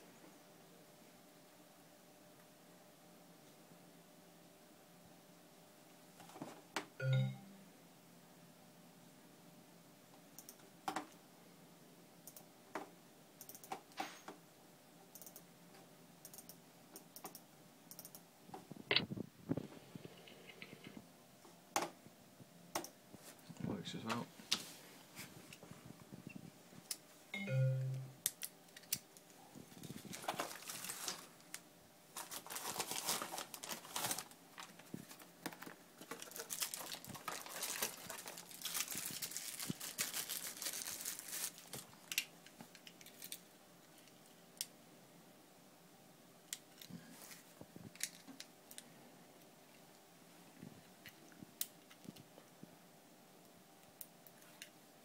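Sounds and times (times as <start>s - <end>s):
plastic crinkling and rustling: 29.5s - 44.2s, 47.0s - 48.9s.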